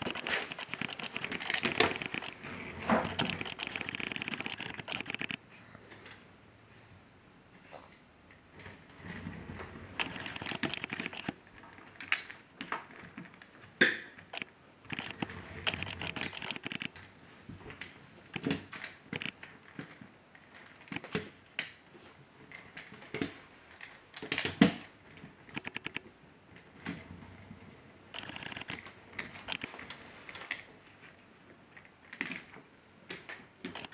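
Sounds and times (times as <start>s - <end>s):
toy car wheels rolling on wood: 0.0s - 5.4s, 8.9s - 12.3s, 14.2s - 17.1s, 28.1s - 30.7s, 33.7s - 33.9s
wooden blocks clicking and knocking: 0.0s - 5.4s, 10.0s - 17.0s, 18.3s - 20.0s, 25.5s - 26.1s, 28.2s - 30.7s, 31.8s - 33.9s.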